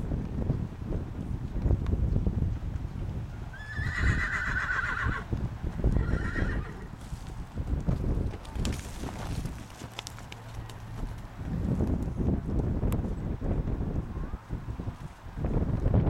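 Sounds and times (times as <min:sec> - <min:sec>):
hooves trotting on dirt: 0:00.0 - 0:13.8
horse whinnying: 0:03.5 - 0:05.3, 0:06.0 - 0:06.9.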